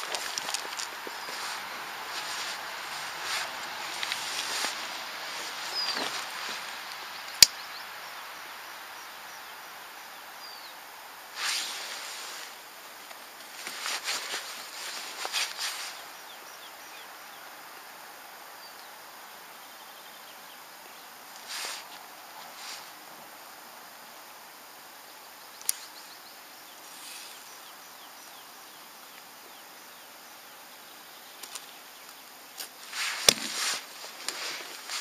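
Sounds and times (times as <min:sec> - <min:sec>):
steady outdoor hiss: 0:00.0 - 0:35.0.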